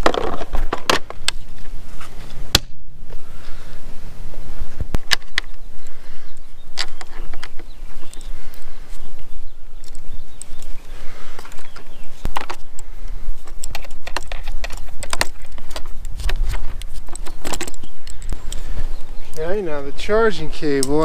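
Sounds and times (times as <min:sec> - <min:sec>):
metal hardware clicking on wood: 0:13.5 - 0:18.6, 0:20.7 - 0:21.0.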